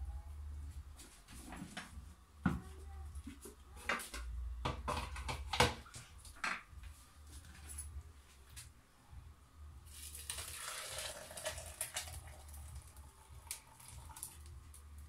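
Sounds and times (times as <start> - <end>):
low hum: 0.0 - 10.1
dishes knocking and clacking: 3.9 - 6.6.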